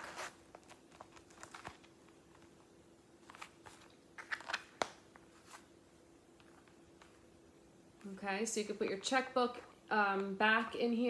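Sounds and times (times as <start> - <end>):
wallet rustling and clicking: 0.0 - 2.6, 3.2 - 5.7
faint steady hum: 0.0 - 11.0.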